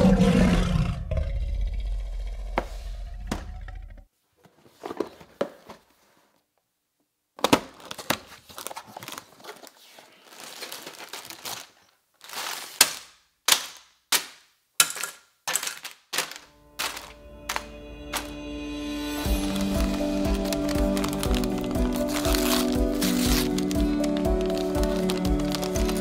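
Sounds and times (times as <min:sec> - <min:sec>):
plastic bags slapping on table: 0:07.4 - 0:18.3, 0:19.4 - 0:26.0
plastic bags crinkling: 0:07.5 - 0:13.8, 0:14.8 - 0:18.4, 0:19.3 - 0:26.0.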